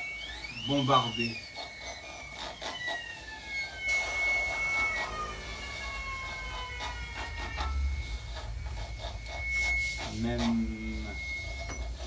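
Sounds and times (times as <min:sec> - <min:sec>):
gliding high tones: 0:00.0 - 0:12.0
low rumble: 0:04.0 - 0:12.0.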